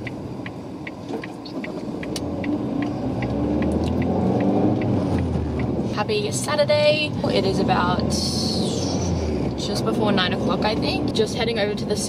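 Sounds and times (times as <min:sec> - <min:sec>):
light regular ticking: 0:00.0 - 0:06.1
car engine and road rumble: 0:00.0 - 0:12.0.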